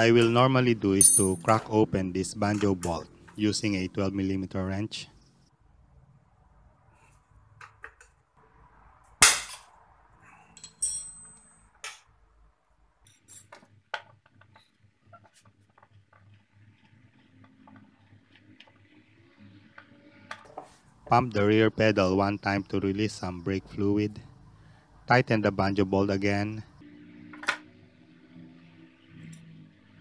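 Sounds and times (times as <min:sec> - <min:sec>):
metallic clink ringing: 0:01.0 - 0:01.6, 0:10.6 - 0:11.6.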